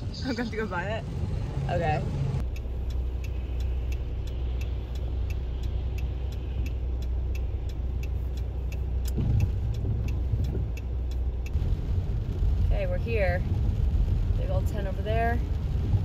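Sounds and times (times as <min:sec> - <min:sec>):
car road noise rumble: 0:00.0 - 0:16.0
light even ticking: 0:02.4 - 0:11.6.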